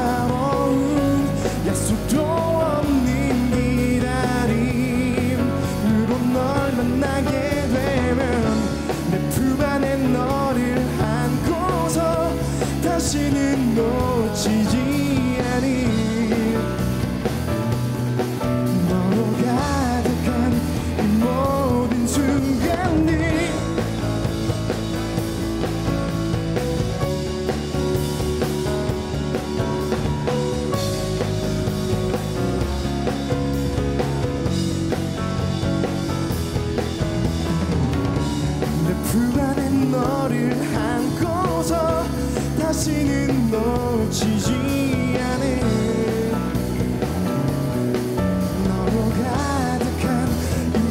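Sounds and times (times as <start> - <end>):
man singing: 0.0 - 25.2, 38.5 - 50.9
bass guitar: 0.0 - 50.9
drum kit: 0.0 - 50.9
electric guitar: 0.0 - 50.9
keyboard: 0.0 - 50.9
live rock band playing: 0.0 - 50.9.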